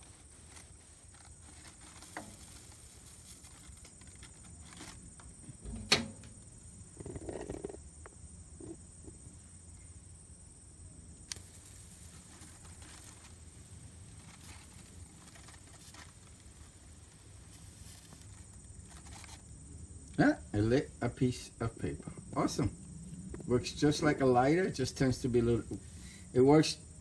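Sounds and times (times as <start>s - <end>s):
crumpled paper rustling: 0.0s - 5.1s, 14.1s - 16.7s, 17.6s - 19.4s.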